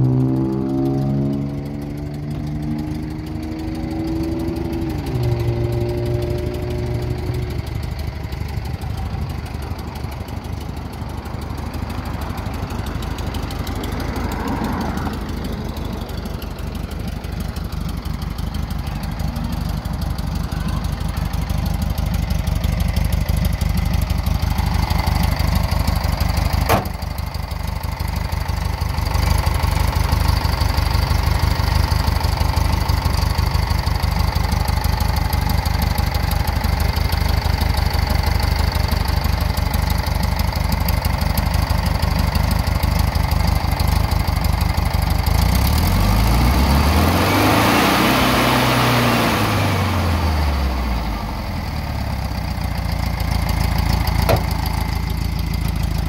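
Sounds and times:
van engine idling: 0:00.0 - 0:56.0.

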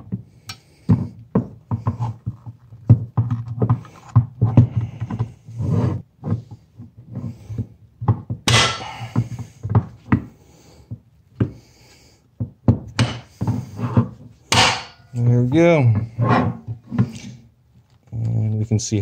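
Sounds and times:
metal scraping: 0:13.1 - 0:17.4.

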